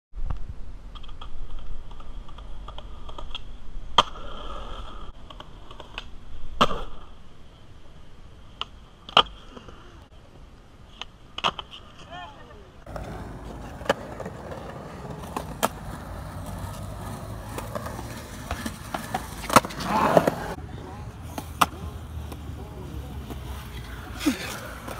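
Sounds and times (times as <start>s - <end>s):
skateboard wheels rolling on concrete: 0.3s - 7.6s, 8.5s - 24.9s
skateboard clacking: 12.9s - 24.9s.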